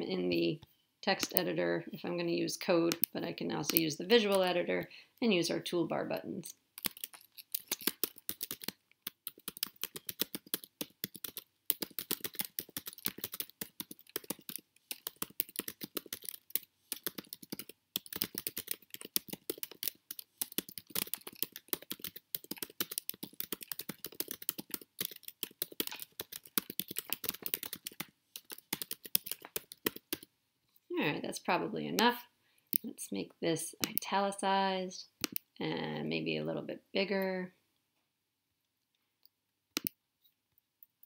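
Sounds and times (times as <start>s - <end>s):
typing on computer keyboard: 6.8s - 30.3s.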